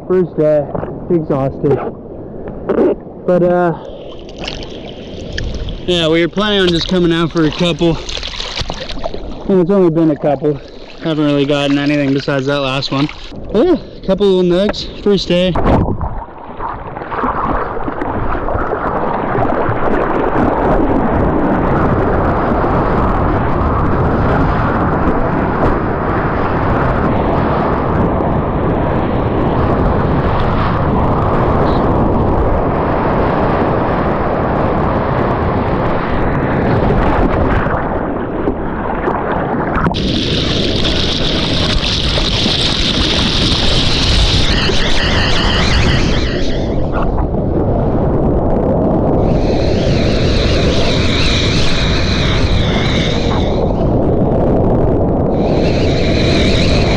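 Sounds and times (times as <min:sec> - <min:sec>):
water and wind roaring on microphone: 0:00.0 - 0:56.9.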